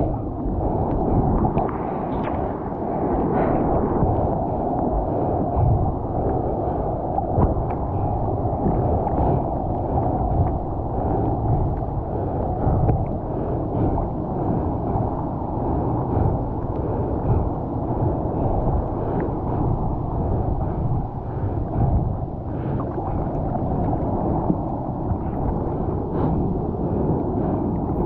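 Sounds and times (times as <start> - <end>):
sea water sloshing: 0.0 - 28.0.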